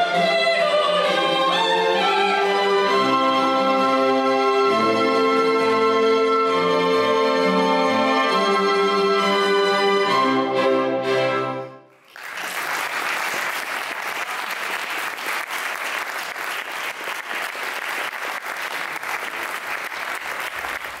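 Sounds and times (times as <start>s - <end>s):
audience applause: 11.9s - 21.0s.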